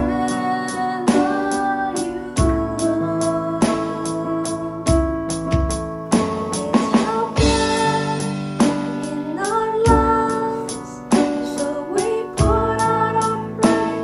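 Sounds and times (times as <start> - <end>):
women singing worship song: 0.0 - 4.3, 6.5 - 14.0
keyboard: 0.0 - 14.0
electronic drums: 4.9 - 10.4, 11.1 - 14.0.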